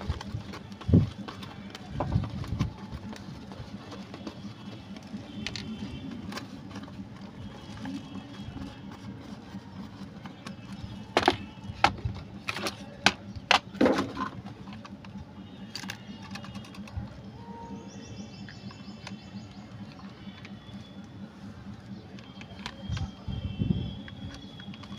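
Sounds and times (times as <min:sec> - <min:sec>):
cardboard box handling: 0:00.0 - 0:15.0
plastic clicks and knocks: 0:10.2 - 0:17.0.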